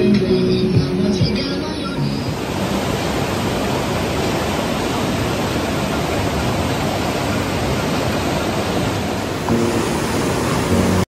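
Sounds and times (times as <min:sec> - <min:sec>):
white water rushing over rocks: 0:00.0 - 0:11.0.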